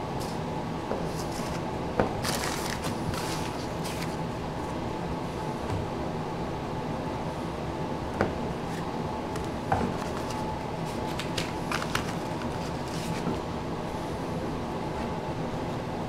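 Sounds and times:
steady background hum: 0:00.0 - 0:16.0
cards clicking and rustling: 0:02.2 - 0:04.2, 0:08.7 - 0:13.4.

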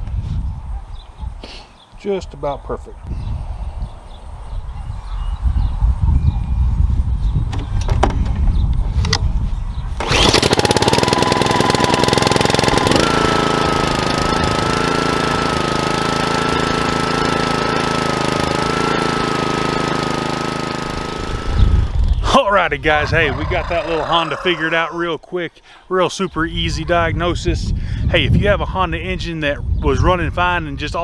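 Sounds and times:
lawn mower engine running: 0:10.0 - 0:22.2.

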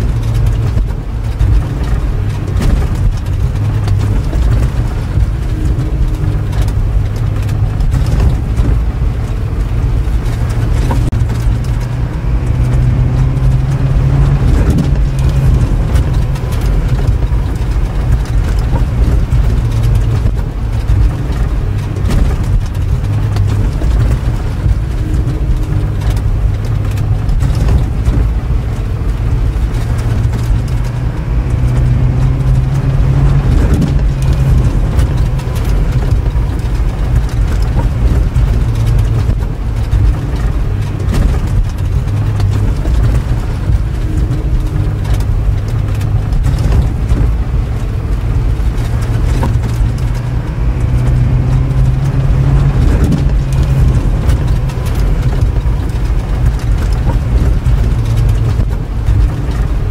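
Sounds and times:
engine idling deeply: 0:00.0 - 0:59.9.

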